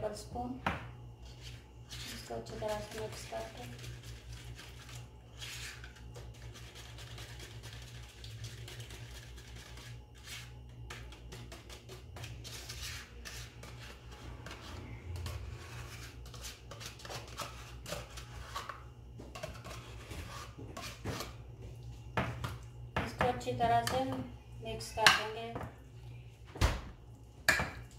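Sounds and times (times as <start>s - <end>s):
metal spoon scraping plastic tub: 8.9s - 18.8s
low hum: 12.5s - 16.5s.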